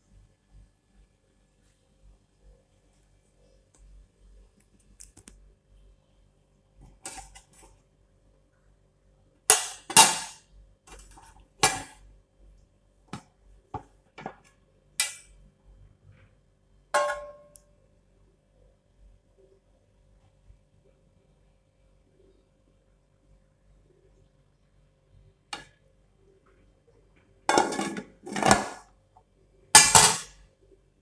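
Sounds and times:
pot lid clattering: 27.5 - 28.8, 29.8 - 30.3.

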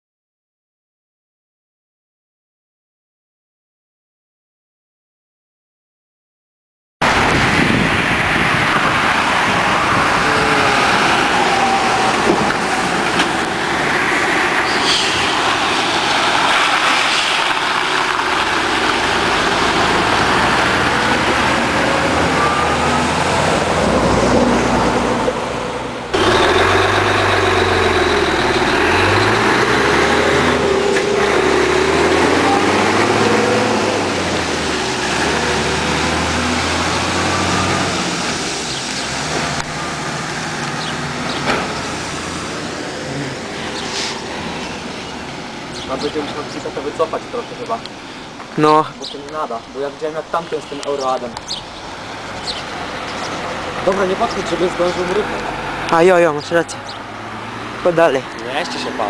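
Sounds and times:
truck diesel engine running: 7.0 - 16.8, 17.4 - 48.2
road traffic passing: 7.0 - 59.0.

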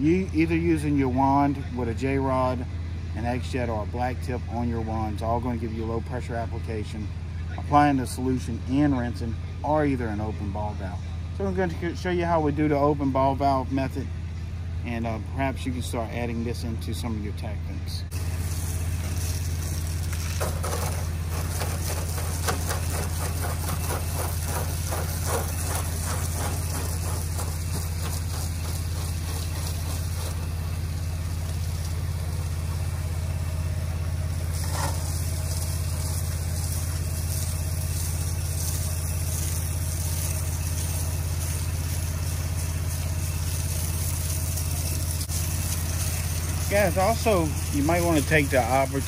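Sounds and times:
pressure washer engine humming: 0.0 - 49.0
water stream hissing: 18.1 - 49.0.

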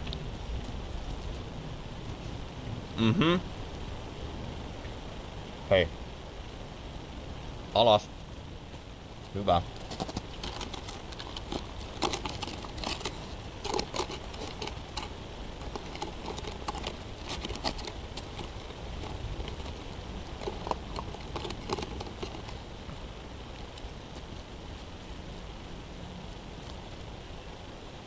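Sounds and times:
puppy nose clicking and crackling: 9.7 - 22.6.

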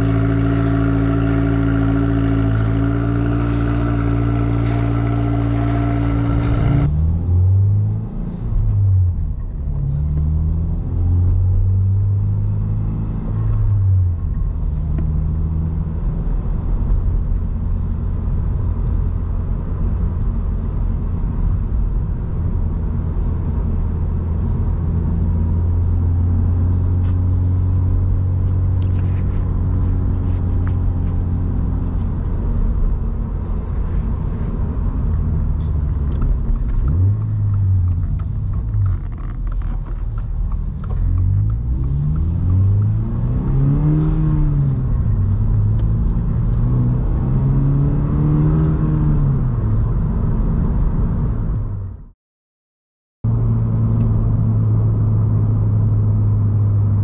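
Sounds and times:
car engine from inside cabin: 0.0 - 52.0, 53.3 - 57.0.

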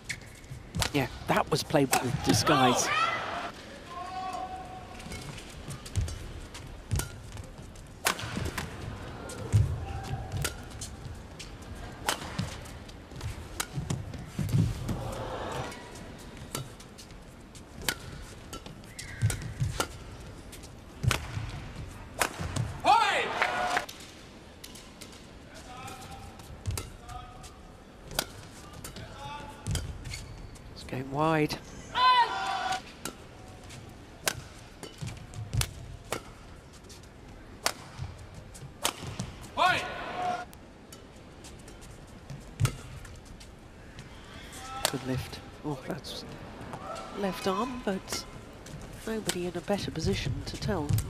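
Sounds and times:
racket striking shuttlecock: 12.0 - 12.6, 38.8 - 39.3
shoes squeaking on court: 16.6 - 20.8, 29.7 - 30.8
rackets striking shuttlecock: 38.8 - 39.3.

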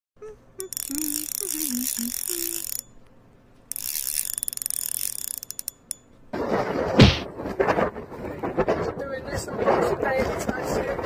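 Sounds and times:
mechanical ratchet clicking: 0.6 - 3.1, 3.7 - 6.1.

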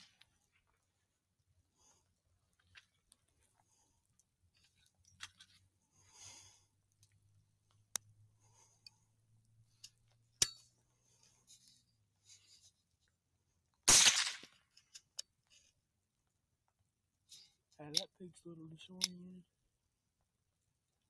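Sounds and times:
rifle shot: 13.9 - 14.5.

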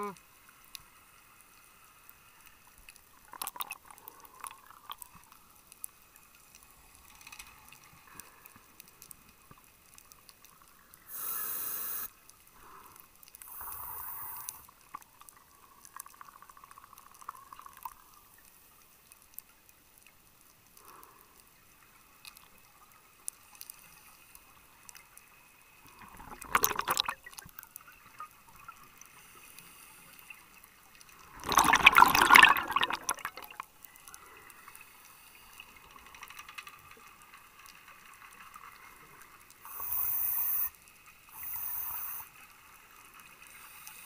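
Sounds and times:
underwater bubbles: 0.0 - 44.0
regulator hiss: 11.1 - 12.2, 13.4 - 14.7, 39.6 - 42.3.

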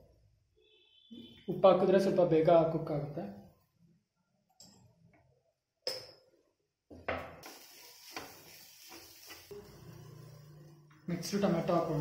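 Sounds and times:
spatula stirring vegetables in pan: 7.4 - 10.3.

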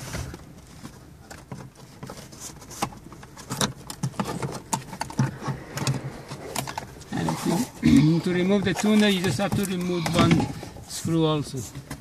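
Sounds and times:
hands handling metal case: 0.0 - 12.0.

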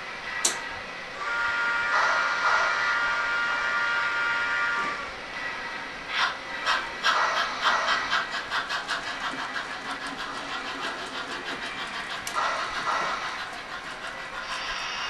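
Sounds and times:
model steam locomotive chuffing: 1.2 - 15.0
steam hiss: 11.2 - 15.0.

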